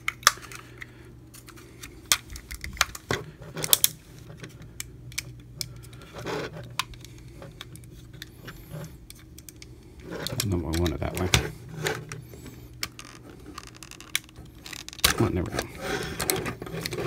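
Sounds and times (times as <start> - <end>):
plastic toy parts clicking: 9.1 - 11.3.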